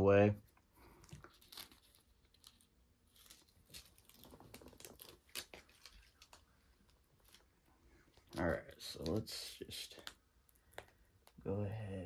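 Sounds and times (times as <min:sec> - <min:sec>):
paper liner rustling and crinkling: 0:00.8 - 0:10.2.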